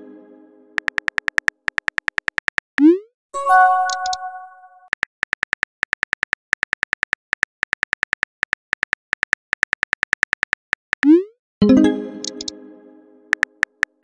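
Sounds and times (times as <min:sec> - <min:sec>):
phone keyboard typing clicks: 0:00.8 - 0:02.6, 0:03.8 - 0:04.2, 0:12.2 - 0:12.5.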